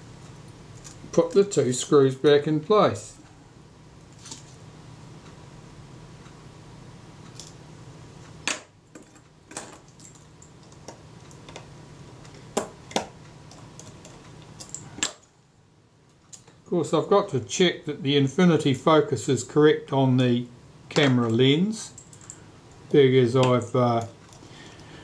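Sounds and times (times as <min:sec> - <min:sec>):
steady low hum: 0:00.0 - 0:25.0
small metal parts clicking: 0:13.5 - 0:15.3.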